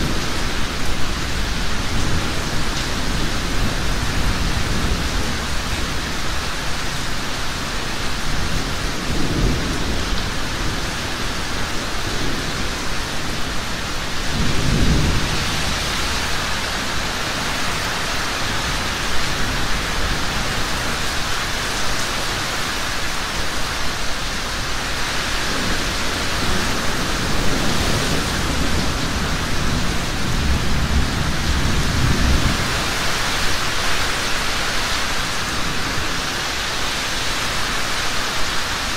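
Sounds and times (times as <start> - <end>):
heavy rain: 0.0 - 38.9
thunder rolling: 14.3 - 20.0.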